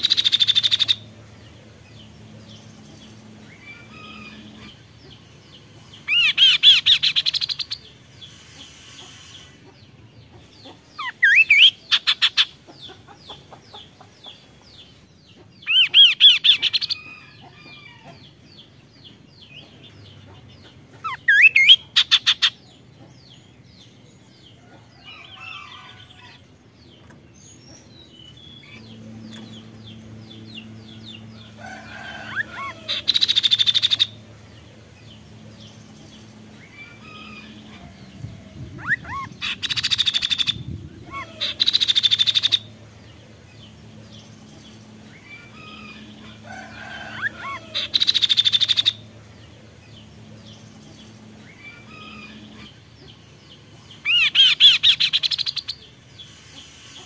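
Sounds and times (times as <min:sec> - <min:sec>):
bird whistling and trilling: 0:21.1 - 0:22.5.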